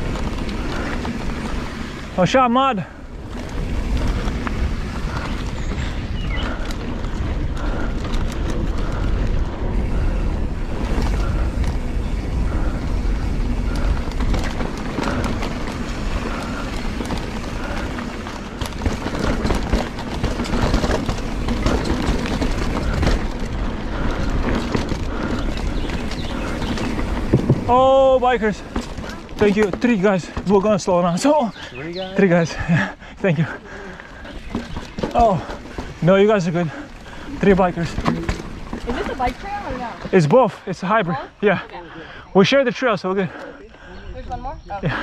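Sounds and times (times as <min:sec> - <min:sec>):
bike clacking and rattling: 0:00.0 - 0:41.3
bike tyre noise on dirt: 0:00.0 - 0:45.0
wind rumble on microphone: 0:03.0 - 0:29.5.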